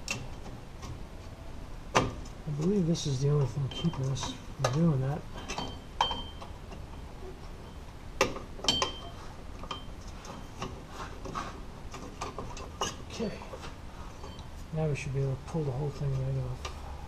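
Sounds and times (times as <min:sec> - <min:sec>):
sharp metallic clinks: 0:03.6 - 0:07.9, 0:08.6 - 0:10.6.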